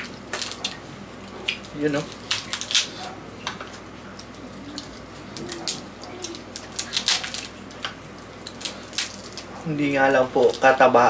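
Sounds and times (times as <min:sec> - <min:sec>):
crab shells cracking: 0:00.0 - 0:09.5, 0:10.4 - 0:10.8.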